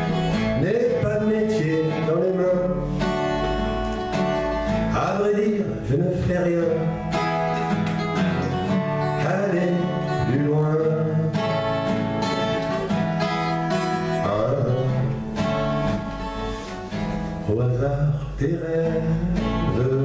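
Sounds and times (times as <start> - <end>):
man singing: 0.0 - 3.8, 4.5 - 7.8, 8.6 - 12.7, 13.8 - 15.8, 17.4 - 20.0
acoustic guitar chords: 0.0 - 20.0.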